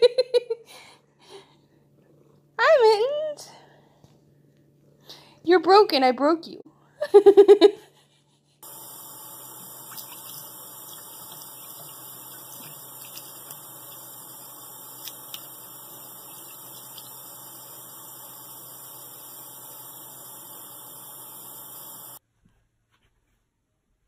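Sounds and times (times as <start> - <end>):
tap water running into sink: 8.6 - 22.2.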